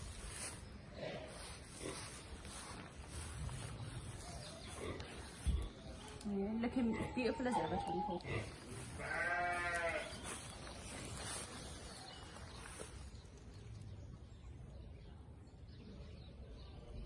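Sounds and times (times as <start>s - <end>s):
farm animal bleating: 6.9s - 10.4s.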